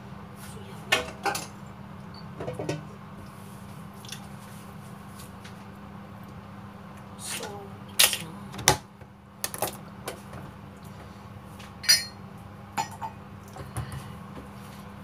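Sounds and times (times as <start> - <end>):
metal utensils clinking: 11.8 - 12.2.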